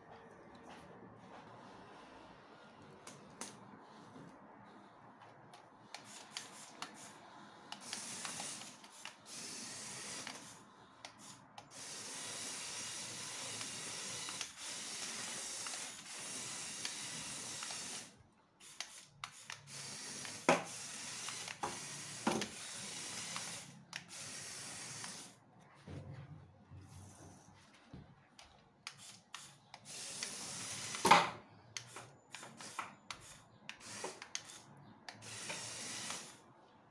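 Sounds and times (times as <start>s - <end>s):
remote-control car whirring: 5.5s - 25.4s, 28.9s - 36.4s.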